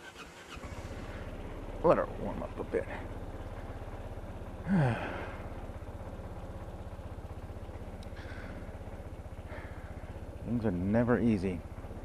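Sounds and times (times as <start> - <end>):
scooter engine idling: 0.0 - 12.0
person sighing: 4.6 - 5.5, 8.2 - 8.7.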